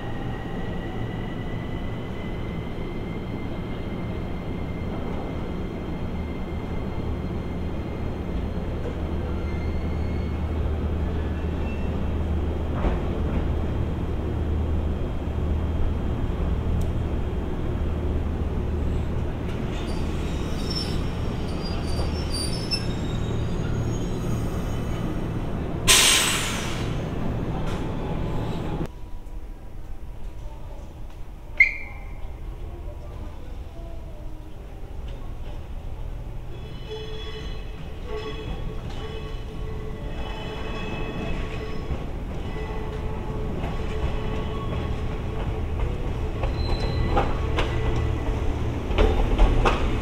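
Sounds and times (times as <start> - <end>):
high brake squeals: 6.3 - 10.5, 19.7 - 25.0, 46.5 - 47.3
loud hiss of air: 25.9 - 27.0.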